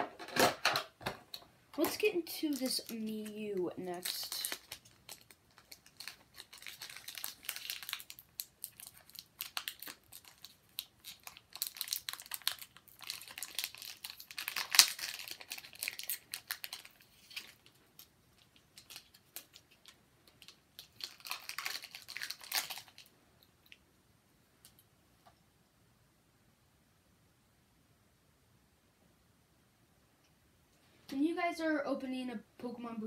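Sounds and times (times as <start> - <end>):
foil wrapper crinkling and tearing: 1.8 - 23.1.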